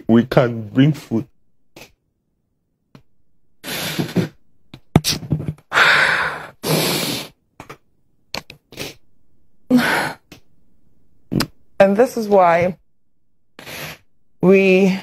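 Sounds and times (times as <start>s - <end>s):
man breathing hard and sniffing: 3.6s - 4.4s, 5.7s - 7.4s, 13.6s - 14.1s.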